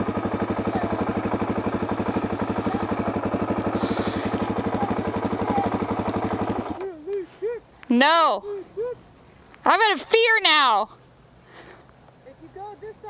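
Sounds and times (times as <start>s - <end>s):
motorcycle engine idling: 0.0s - 9.8s.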